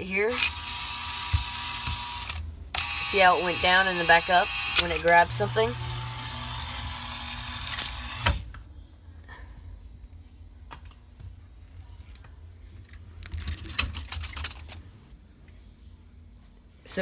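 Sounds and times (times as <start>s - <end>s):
small electric motors whirring: 0.3s - 8.5s.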